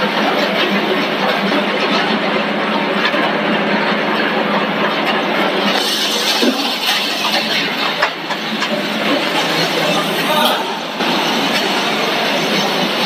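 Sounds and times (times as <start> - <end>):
production line machinery din: 0.0 - 13.0.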